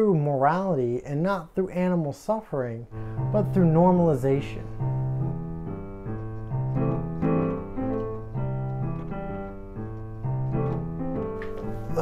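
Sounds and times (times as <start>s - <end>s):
piano playing chords: 2.9s - 12.0s.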